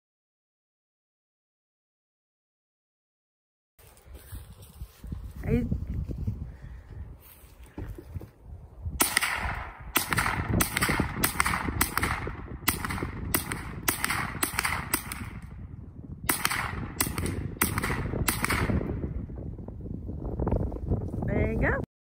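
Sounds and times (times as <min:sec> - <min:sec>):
rifle shots echoing: 0:09.0 - 0:15.7, 0:16.3 - 0:19.2.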